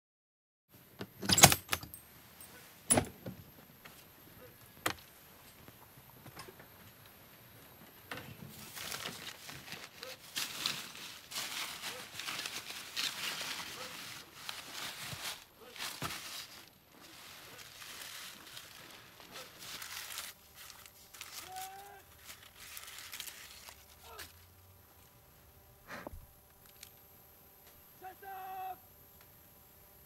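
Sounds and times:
paper wrapping rustling: 8.4 - 25.1.

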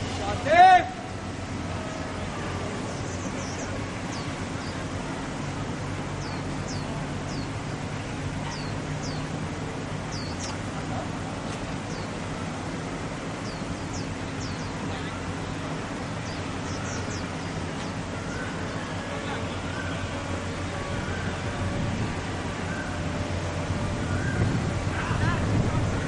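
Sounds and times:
outdoor background noise: 0.0 - 26.0
small birds chirping: 1.8 - 21.5.

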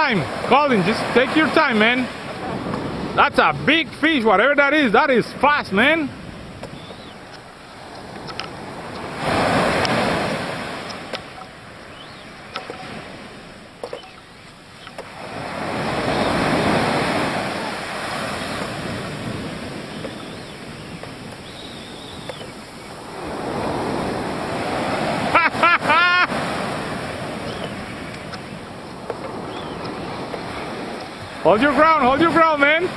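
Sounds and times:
waves crashing on sand: 0.0 - 32.9
faint clicks: 6.6 - 9.1, 27.6 - 31.2.

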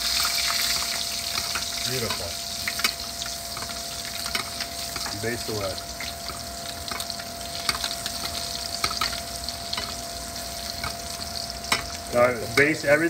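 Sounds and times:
scallops sizzling in a pan: 0.0 - 13.0
spoon clinking and scraping pan: 10.7 - 12.8.

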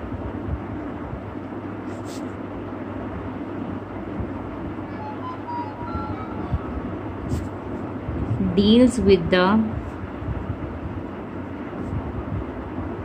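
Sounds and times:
rumbling background noise: 0.0 - 13.0.

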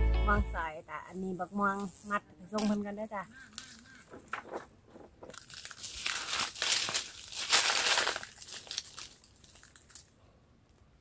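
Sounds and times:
dry leaves rustling and crinkling: 3.5 - 10.1.

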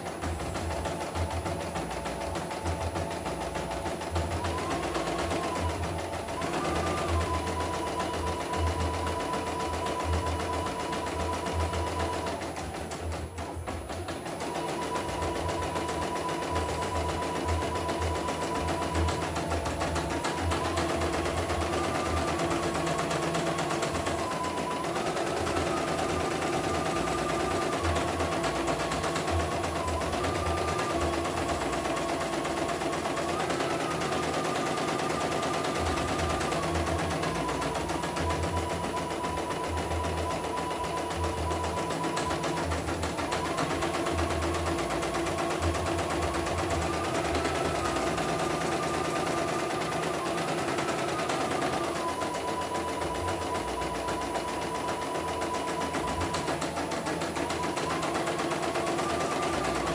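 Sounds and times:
embroidery machine needle chatter: 0.0 - 59.9.

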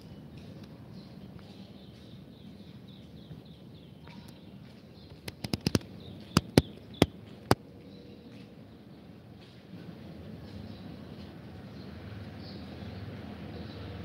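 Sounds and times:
sharp clicks: 5.2 - 7.6.

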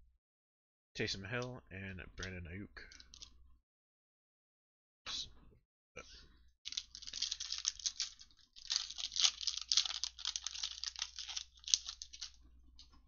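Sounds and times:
foil wrapper tearing and crinkling: 6.7 - 12.4.

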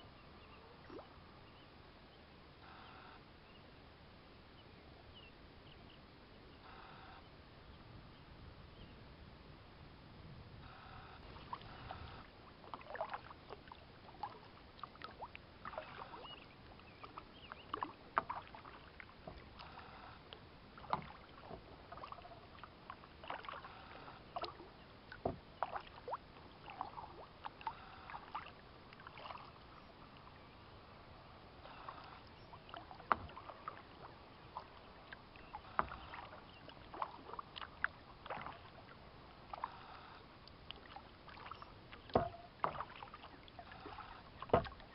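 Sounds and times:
paddle splashing in water: 10.6 - 30.3, 31.0 - 44.9.

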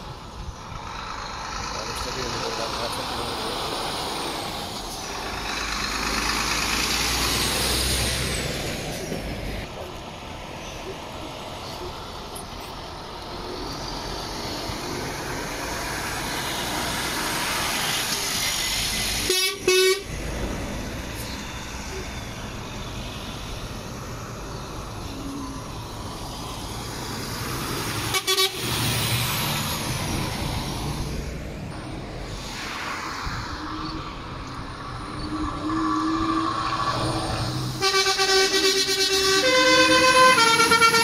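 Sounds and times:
heavy trucks driving past: 0.0 - 41.0
truck horn toots: 19.2 - 20.1, 28.0 - 28.8, 37.8 - 41.0.

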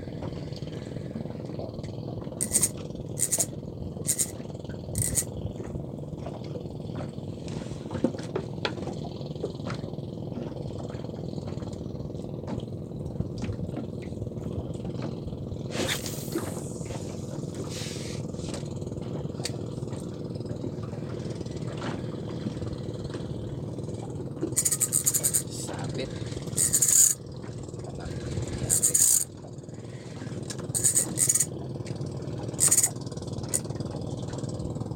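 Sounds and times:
fishing reel light clicks: 2.4 - 4.4, 5.0 - 5.3, 24.6 - 25.5, 26.6 - 27.2, 28.7 - 29.3, 30.5 - 31.5, 32.6 - 33.8.

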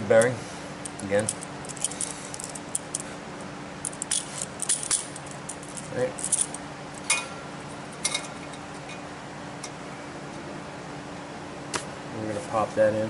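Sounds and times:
light metallic clinks and rattles: 0.1 - 3.1, 3.8 - 7.3.

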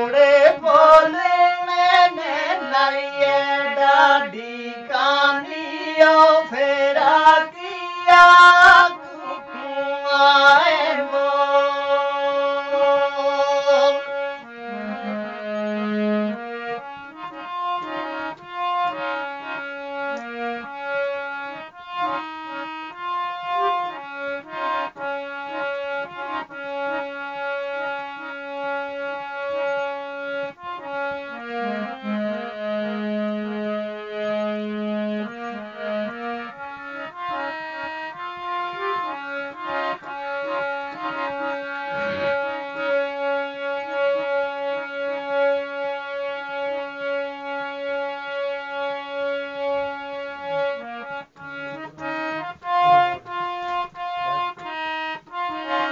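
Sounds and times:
person singing: 0.0 - 16.2, 38.1 - 43.0
harmonium folk tune: 0.0 - 55.9.

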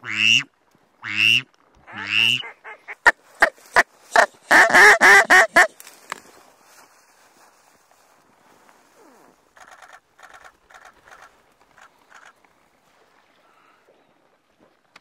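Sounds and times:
duck quacking loudly: 0.0 - 5.7.

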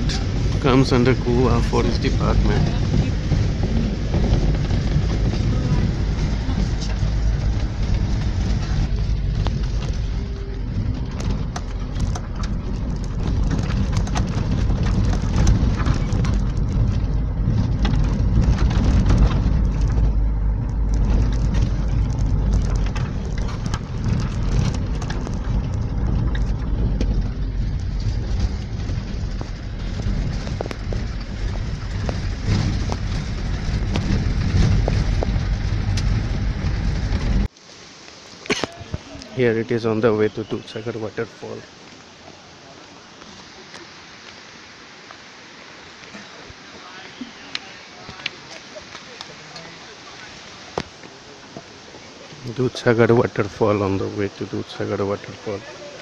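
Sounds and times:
rattles and knocks: 0.0 - 37.5
vehicle rumbling on dirt road: 0.0 - 56.0.

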